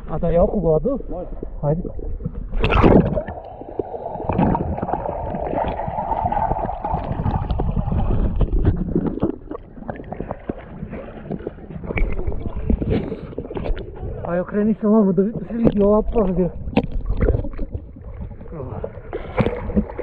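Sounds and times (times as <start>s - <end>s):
lake water splashing: 2.5s - 14.2s.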